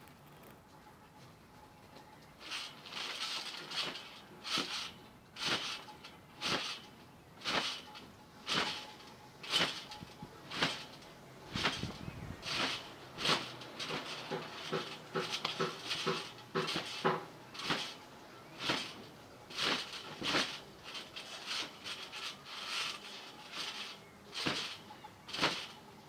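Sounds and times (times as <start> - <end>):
trampoline bouncing: 2.2 - 26.0.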